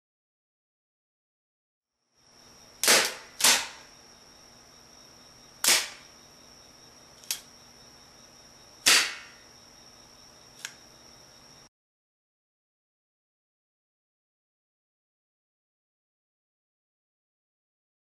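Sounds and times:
sharp wooden clacks: 2.8 - 3.8, 5.6 - 6.0, 8.8 - 9.4
lighter clicks: 10.6 - 10.8.

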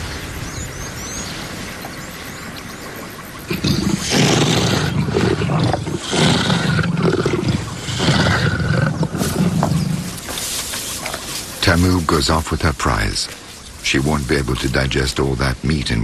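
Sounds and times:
lioness growling: 3.4 - 10.3.

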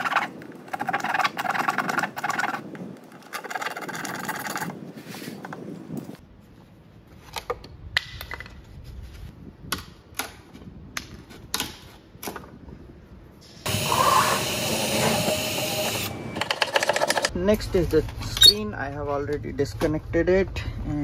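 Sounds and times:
cordless drill running: 13.7 - 16.2.

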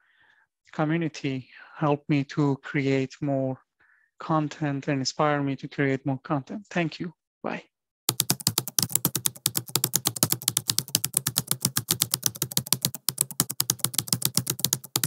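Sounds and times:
keyboard typing clicks: 8.1 - 15.0.

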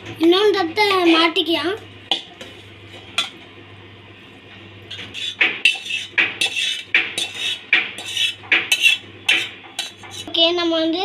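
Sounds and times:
utensil scraping steel pot: 4.9 - 10.3.

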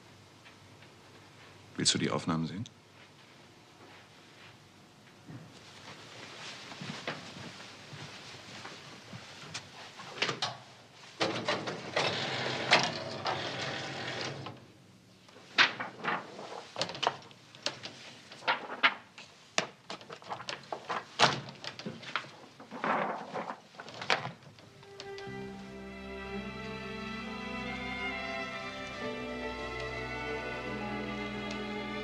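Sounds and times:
film sheets rustling and sliding: 11.2 - 14.6, 15.3 - 25.8.

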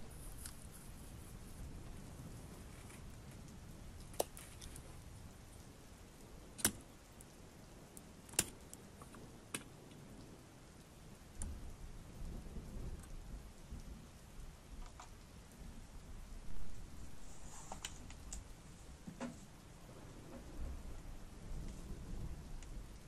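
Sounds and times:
soft rubbing: 17.0 - 19.5.

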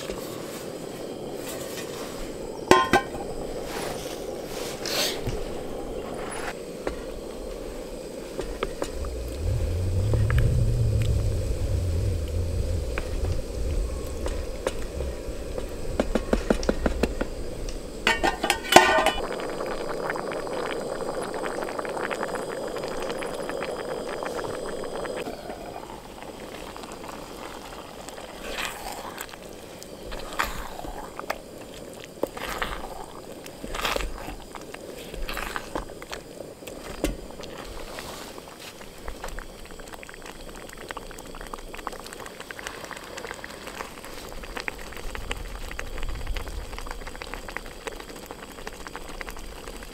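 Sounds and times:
food simmering in a pot: 0.0 - 49.9
low wind rumble: 5.3 - 28.3, 44.3 - 49.9.

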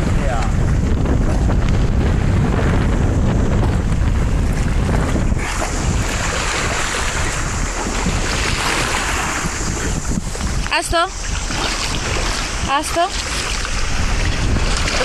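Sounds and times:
sea: 0.0 - 15.0
wind rumbling on microphone: 0.0 - 15.0
shallow water splashing: 3.4 - 15.0.

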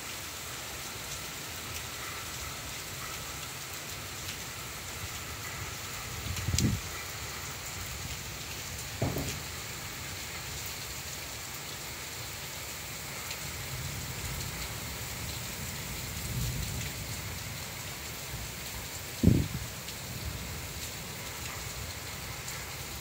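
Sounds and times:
heavy rain hissing: 0.0 - 23.0
wind gust buffeting microphone: 6.2 - 6.9, 19.2 - 19.7.

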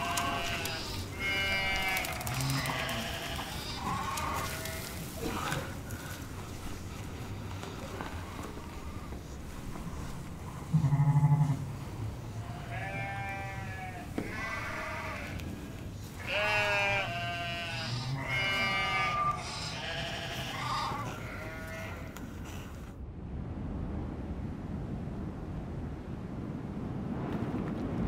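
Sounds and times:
sheep bleating: 0.0 - 5.7, 10.7 - 11.7, 12.4 - 15.4, 16.0 - 22.2.

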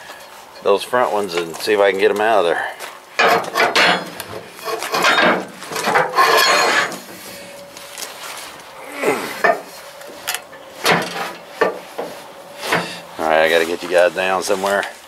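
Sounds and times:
wood creaking and scraping: 3.2 - 15.0.

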